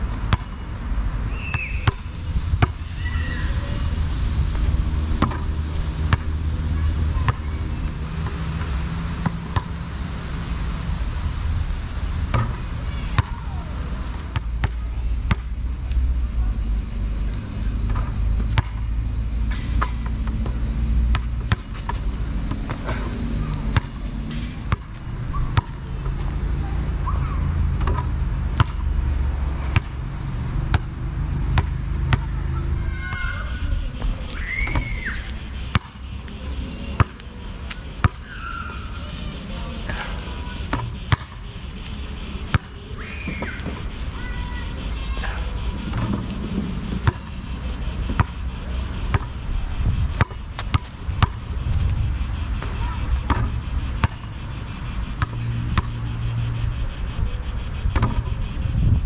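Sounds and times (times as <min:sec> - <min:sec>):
cicadas chirring: 0:00.0 - 0:59.0
insect chorus: 0:00.0 - 0:59.0
basketball bouncing on asphalt: 0:00.1 - 0:00.6, 0:01.3 - 0:03.8, 0:04.5 - 0:09.8, 0:12.2 - 0:13.6, 0:14.2 - 0:15.6, 0:17.6 - 0:38.5, 0:39.9 - 0:41.5, 0:42.2 - 0:44.6, 0:45.2 - 0:54.4, 0:55.1 - 0:56.0, 0:57.8 - 0:58.6.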